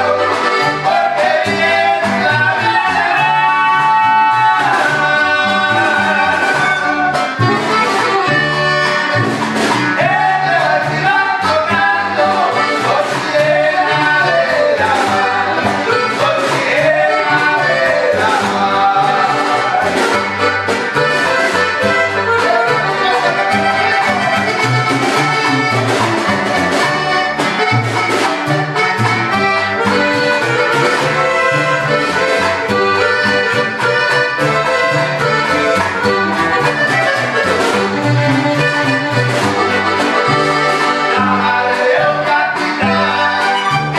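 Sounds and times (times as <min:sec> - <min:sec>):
person singing: 0:00.0 - 0:07.7, 0:09.9 - 0:20.4, 0:21.2 - 0:24.6, 0:40.0 - 0:43.9
button accordion melody: 0:00.0 - 0:43.9
strummed guitar: 0:00.0 - 0:43.9
upright bass: 0:00.0 - 0:43.9
snare drum: 0:09.2 - 0:10.2.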